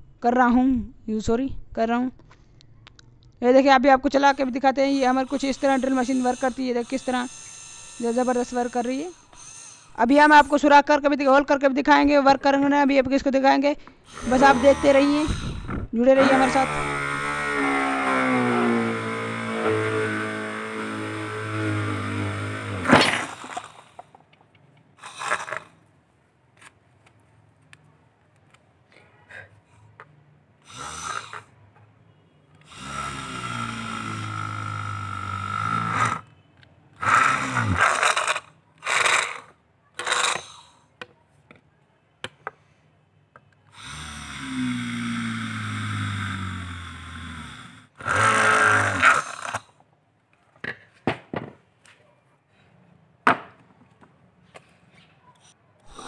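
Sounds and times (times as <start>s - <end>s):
small motor drill whirring: 4.8s - 10.6s, 14.1s - 24.0s, 30.7s - 31.5s, 32.6s - 36.2s, 37.0s - 40.5s, 43.8s - 49.6s.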